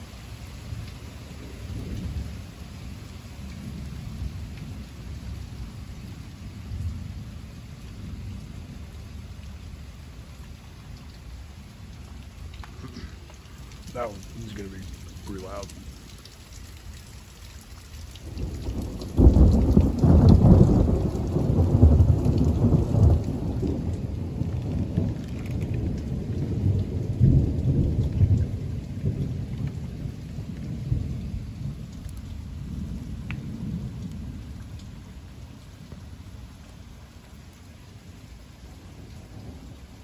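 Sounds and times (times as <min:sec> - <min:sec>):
heavy rain: 0:00.0 - 0:40.0
thunder crack and rumble: 0:18.2 - 0:35.2.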